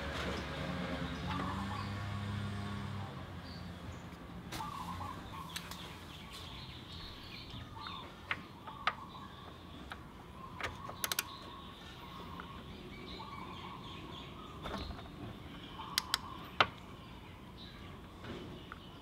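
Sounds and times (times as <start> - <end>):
birds chirping: 0.0 - 19.0
metal socket clicks: 11.0 - 11.3, 16.0 - 16.2.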